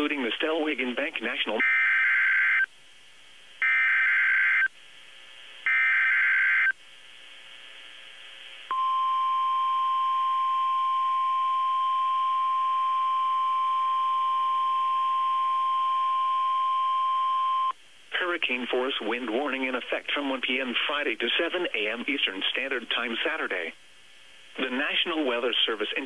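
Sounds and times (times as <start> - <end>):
faint radio hiss: 0.0 - 26.0
steady warning alarm tone: 1.6 - 2.7, 3.6 - 4.7, 5.7 - 6.7.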